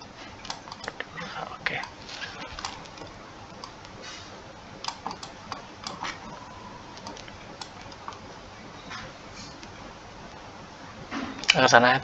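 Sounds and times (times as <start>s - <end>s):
quiet steady hiss: 0.0s - 12.0s.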